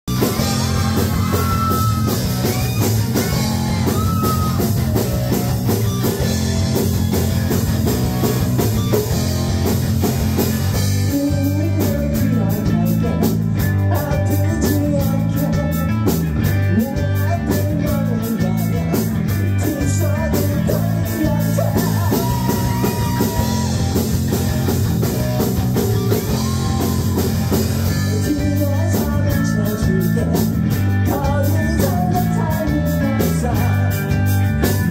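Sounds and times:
live rock band playing: 0.0 - 34.9
lead vocal singing: 11.0 - 15.9, 16.7 - 24.0, 31.1 - 34.2.

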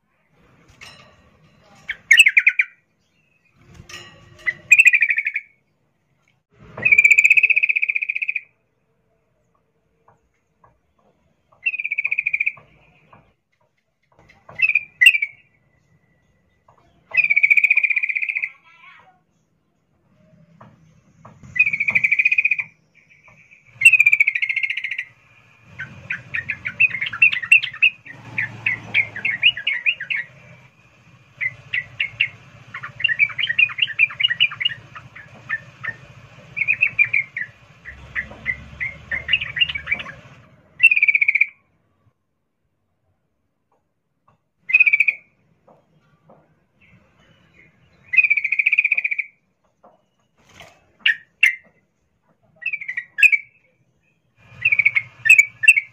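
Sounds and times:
bird chattering calls: 21.5 - 25.1, 25.7 - 30.6, 31.4 - 41.6, 48.1 - 49.4, 54.4 - 55.9.

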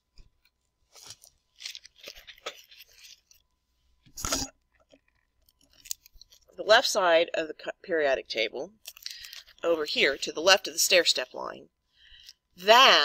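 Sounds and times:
paper rustling: 0.1 - 3.4
paper crackling: 0.9 - 3.4.

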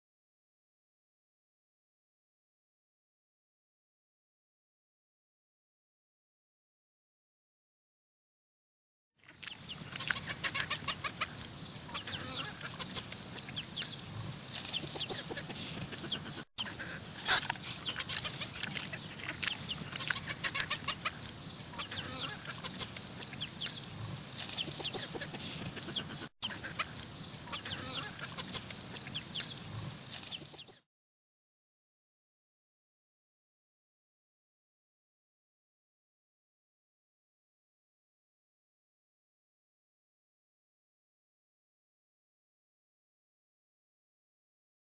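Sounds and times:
chickens clucking: 9.3 - 30.8.

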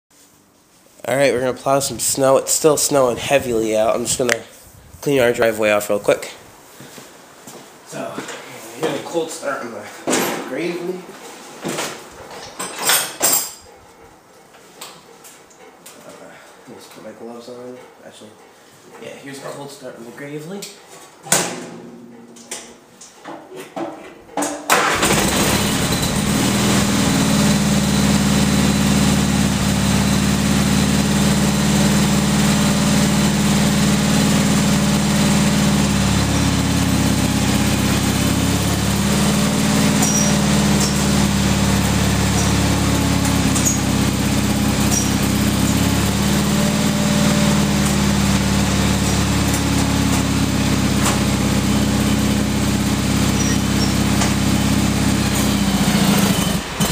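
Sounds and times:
tractor engine starting and running: 1.1 - 4.4, 24.7 - 56.9.

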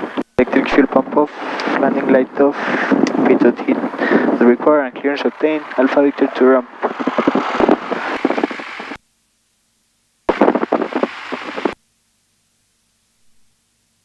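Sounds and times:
headset intercom crackling: 0.0 - 9.0, 10.3 - 11.8
faint hum: 0.0 - 14.0.

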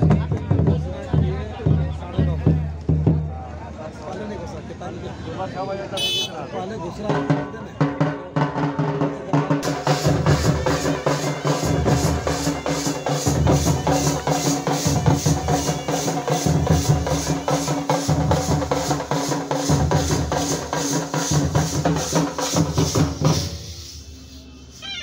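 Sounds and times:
barrel drums beating: 7.1 - 23.7.

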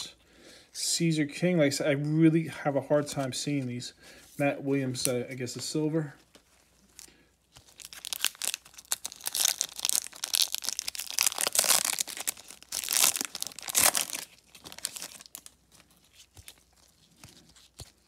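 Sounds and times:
foil wrapper tearing and crinkling: 7.6 - 18.0.

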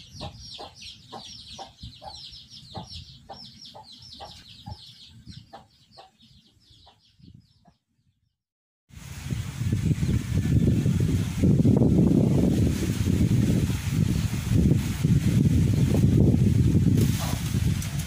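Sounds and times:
hen clucking: 0.0 - 7.1
wind noise on microphone: 0.0 - 7.7, 8.9 - 18.0
chicks peeping: 0.0 - 7.8.

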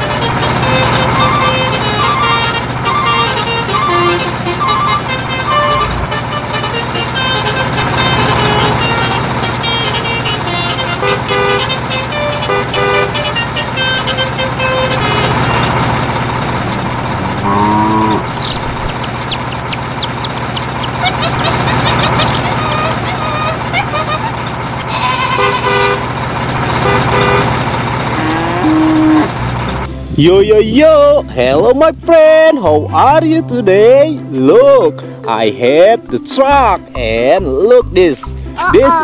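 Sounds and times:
rising call: 1.0 - 6.0, 16.3 - 26.0
quick high chirps: 18.3 - 23.6
background music with ticking beat: 35.5 - 39.0.

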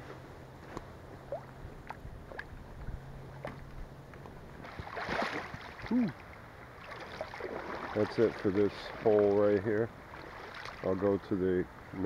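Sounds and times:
faint steady hum: 0.0 - 12.0
person humming low: 5.8 - 6.2.

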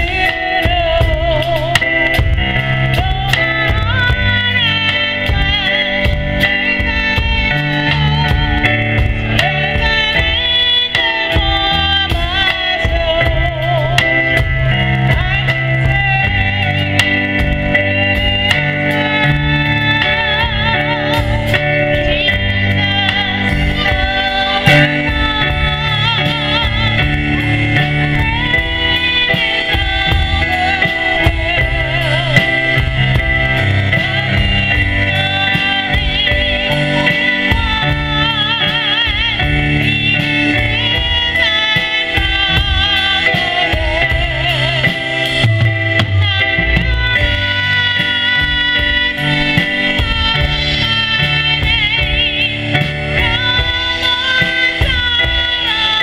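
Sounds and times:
drum kit beat: 0.0 - 56.0
electronic keyboard: 0.0 - 56.0
sliding lead melody: 0.0 - 56.0.

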